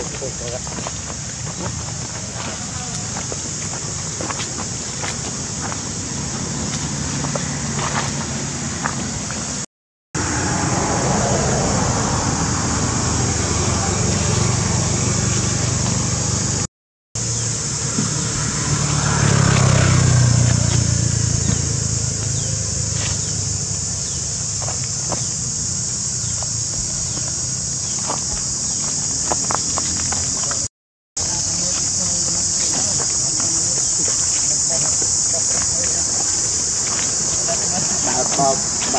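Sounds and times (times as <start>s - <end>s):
high-pitched hiss: 0.0s - 7.4s, 21.4s - 38.9s
footsteps on dry leaves: 0.0s - 9.6s, 22.3s - 38.9s
high insect chorus: 0.0s - 9.6s, 10.2s - 38.9s
vehicle engine running: 0.0s - 9.6s, 10.2s - 38.9s.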